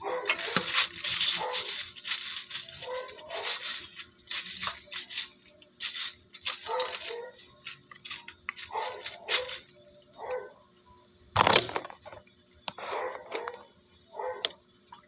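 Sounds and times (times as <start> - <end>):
plastic brush scrubbing crab shell: 0.3 - 9.7.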